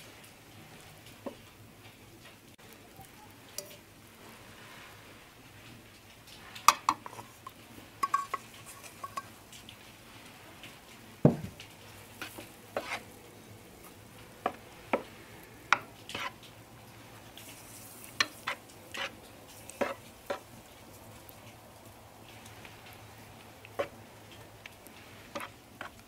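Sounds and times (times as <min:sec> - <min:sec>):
wooden spoon scraping metal pot: 0:06.7 - 0:09.4, 0:12.1 - 0:13.2, 0:13.8 - 0:16.5, 0:17.4 - 0:20.6, 0:23.7 - 0:24.0, 0:25.2 - 0:26.0.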